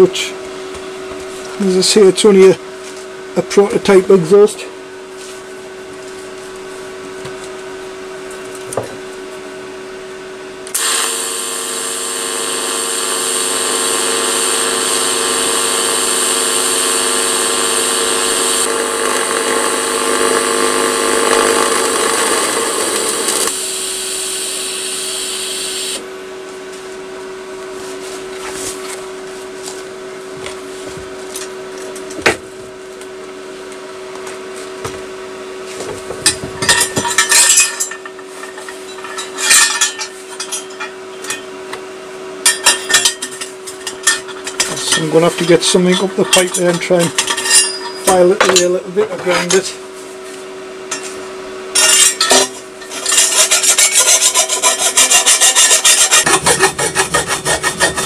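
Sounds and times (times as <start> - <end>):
steady hum: 0.0 - 30.8, 42.2 - 58.0
electric power tool running: 10.7 - 26.1, 53.1 - 58.0.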